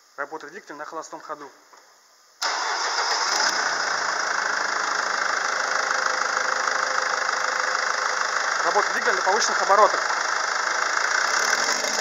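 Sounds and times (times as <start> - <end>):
diesel engine idling: 2.4 - 12.0.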